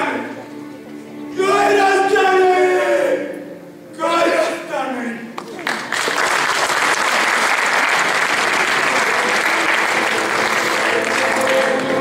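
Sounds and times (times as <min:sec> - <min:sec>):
faint music: 0:00.0 - 0:06.0, 0:07.1 - 0:12.0
audience applauding: 0:05.4 - 0:12.0.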